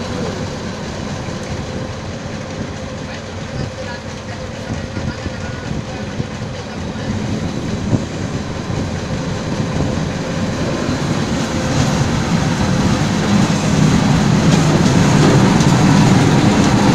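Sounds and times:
diesel engines rumbling: 0:00.0 - 0:16.9.

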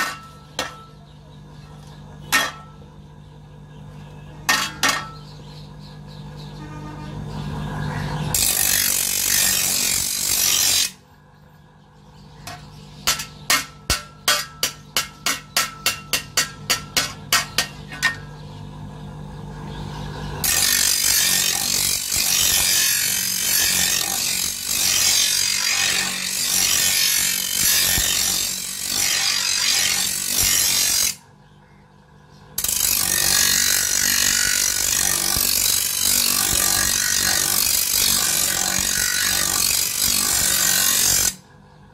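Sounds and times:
grinding wheel grinding steel: 0:00.0 - 0:01.2, 0:06.5 - 0:11.0, 0:12.4 - 0:18.6, 0:20.4 - 0:31.2, 0:32.6 - 0:41.4
sharp ringing metal strikes: 0:12.4 - 0:18.4.

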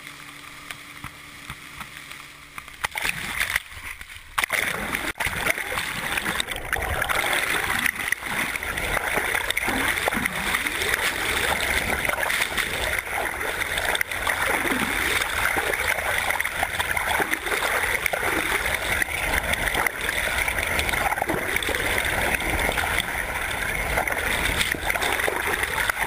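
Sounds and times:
faint water gurgles: 0:00.0 - 0:26.0.

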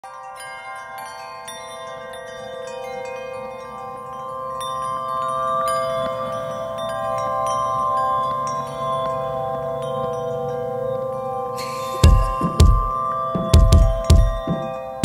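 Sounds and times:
chiming bell-like music: 0:00.0 - 0:15.0.

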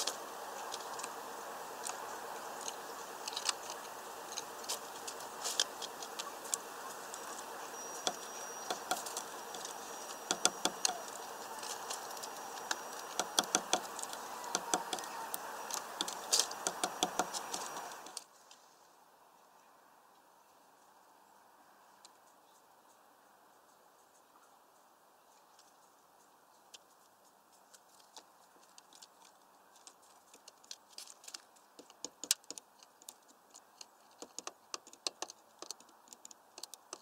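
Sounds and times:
birds pecking at feeder: 0:00.0 - 0:18.2, 0:28.0 - 0:37.0
steady background hum: 0:00.0 - 0:18.4.

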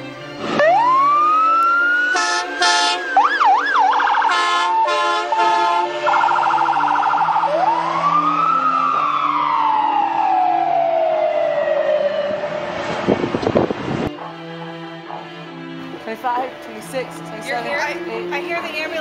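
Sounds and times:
ambulance siren wailing: 0:00.4 - 0:15.4
horn blasts: 0:02.0 - 0:03.3, 0:04.2 - 0:06.2.

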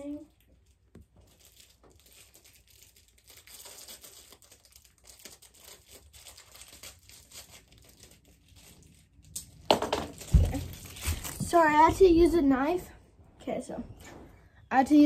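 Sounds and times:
plastic wrapper crinkling: 0:00.0 - 0:11.8.

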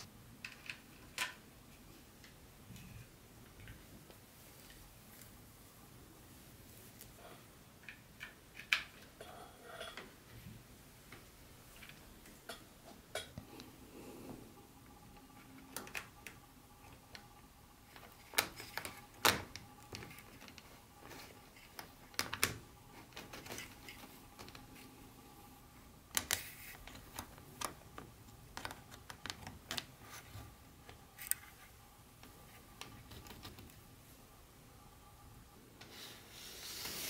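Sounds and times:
faint steady hum: 0:00.0 - 0:37.0
plastic clicks and light taps: 0:26.1 - 0:29.9.

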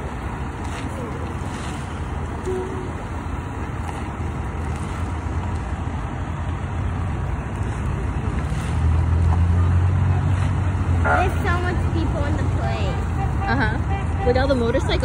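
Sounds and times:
cars driving past: 0:00.0 - 0:15.0.

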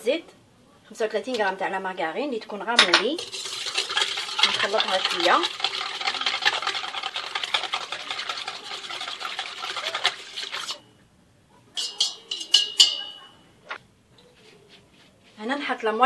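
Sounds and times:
utensil scraping in metal pot: 0:02.8 - 0:10.9, 0:11.8 - 0:13.2.

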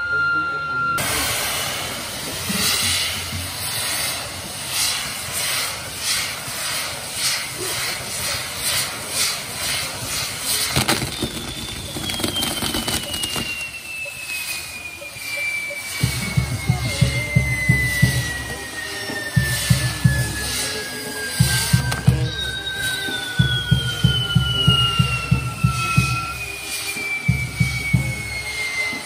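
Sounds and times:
falling firework whistle: 0:00.0 - 0:29.0
fireworks sparks hissing: 0:01.0 - 0:29.0
firework bang: 0:10.6 - 0:13.8.

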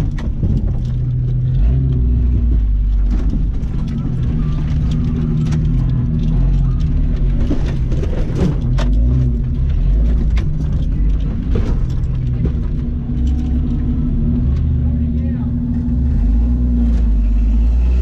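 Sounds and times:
car engine running at low revs: 0:00.0 - 0:18.0.

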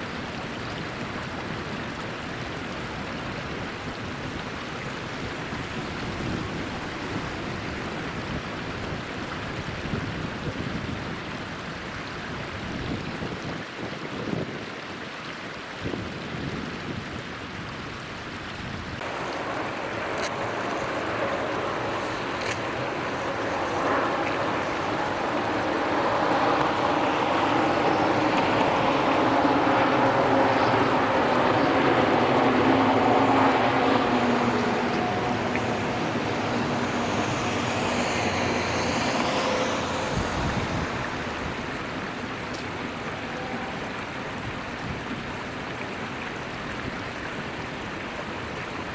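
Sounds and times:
stream flowing: 0:00.0 - 0:48.9
electric freight train passing: 0:19.0 - 0:42.4.

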